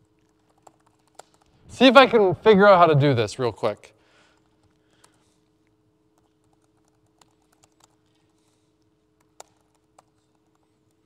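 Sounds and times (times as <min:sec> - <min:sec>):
steady low hum: 0:00.0 - 0:11.0
keyboard typing clicks: 0:00.1 - 0:01.6, 0:06.1 - 0:08.4, 0:09.2 - 0:11.0.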